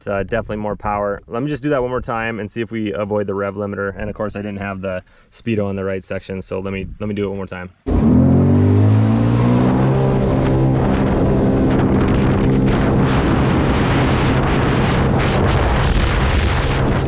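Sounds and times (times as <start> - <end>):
water rushing past hull: 7.9 - 17.0
wind buffeting microphone: 8.6 - 17.0
watercraft engine running hard: 9.7 - 15.6.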